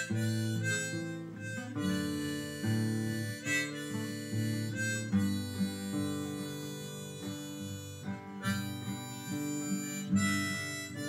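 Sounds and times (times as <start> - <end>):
acoustic guitars strumming: 0.0 - 11.0
harmonica playing: 0.0 - 11.0.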